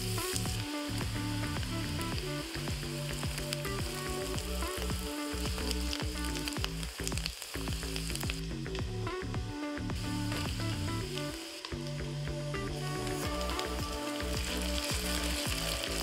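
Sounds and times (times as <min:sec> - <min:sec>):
onion sizzling in hot oil: 0:00.0 - 0:08.6, 0:13.1 - 0:16.0
background music with bass line: 0:00.0 - 0:16.0.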